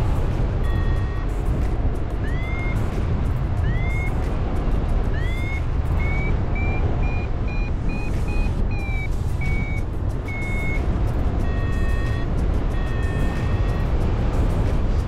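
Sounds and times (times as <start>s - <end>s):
wind rumble on microphone: 0.0s - 15.0s
variometer beeping: 0.6s - 1.4s, 2.2s - 3.0s, 3.6s - 4.2s, 5.0s - 14.0s.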